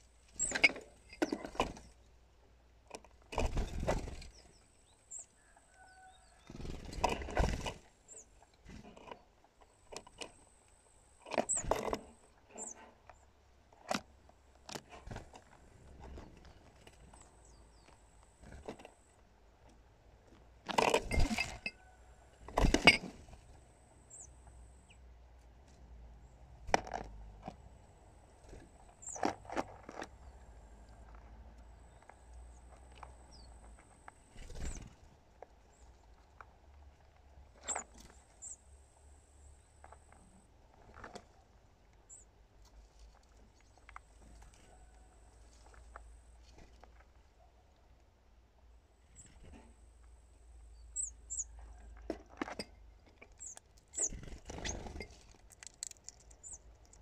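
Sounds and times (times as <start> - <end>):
squirrel scratching and knocking: 53.2 - 57.0.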